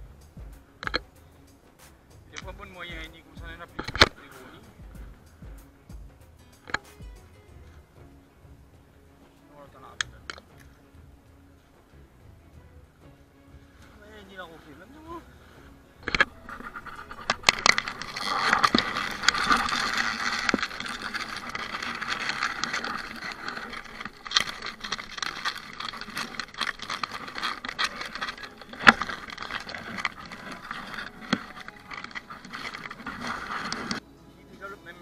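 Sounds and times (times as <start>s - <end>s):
leaves and grass rustling: 0.0s - 35.0s
vegetation crackling and snapping: 16.0s - 34.0s.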